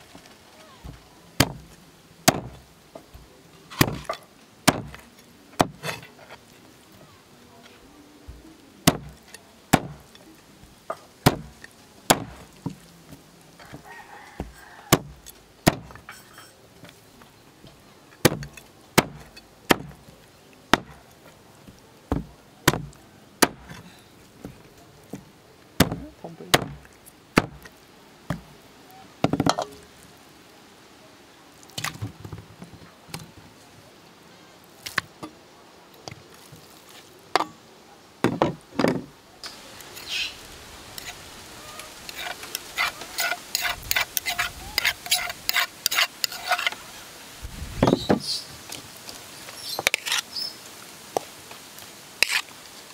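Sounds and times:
cleaver chopping on wooden board: 0:00.8 - 0:01.7, 0:02.3 - 0:02.6, 0:03.8 - 0:05.0, 0:05.6 - 0:05.9, 0:08.9 - 0:10.1, 0:11.2 - 0:12.8, 0:14.4 - 0:16.0, 0:18.2 - 0:20.0, 0:20.7 - 0:21.0, 0:22.1 - 0:23.8, 0:25.8 - 0:27.7.

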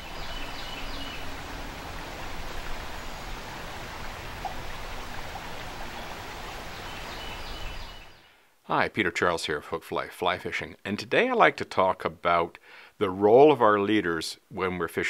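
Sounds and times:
river water running: 0:00.0 - 0:08.3.

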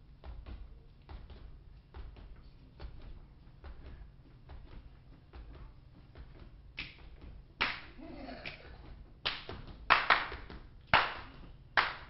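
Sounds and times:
hand claps and body slaps: 0:04.6 - 0:12.0.

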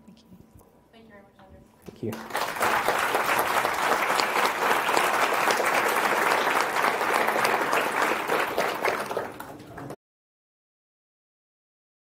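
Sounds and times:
audience applauding: 0:02.1 - 0:10.0.

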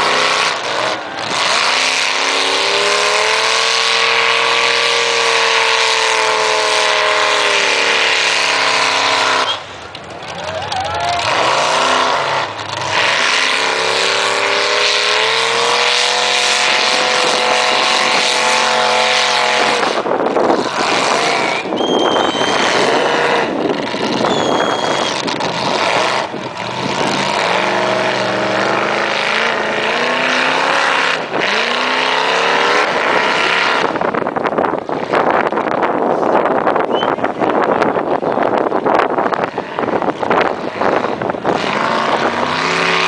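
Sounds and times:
truck engine revving: 0:00.0 - 0:43.0.

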